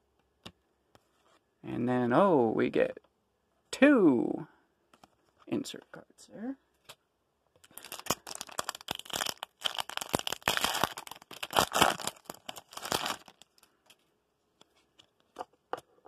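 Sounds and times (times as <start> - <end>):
foil wrapper crinkling and tearing: 7.6 - 13.7.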